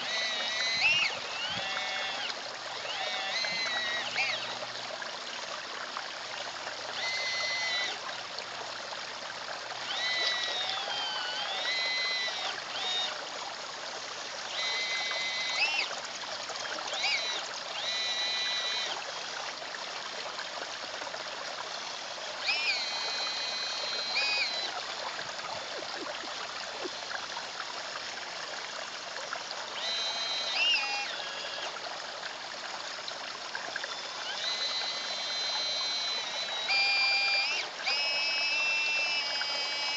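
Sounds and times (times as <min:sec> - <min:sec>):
high electric motor whines: 0:00.0 - 0:05.0, 0:06.2 - 0:08.2, 0:09.7 - 0:13.4, 0:14.0 - 0:19.4, 0:21.6 - 0:26.1, 0:29.6 - 0:31.9, 0:33.6 - 0:39.9
pond water trickling: 0:00.0 - 0:39.9.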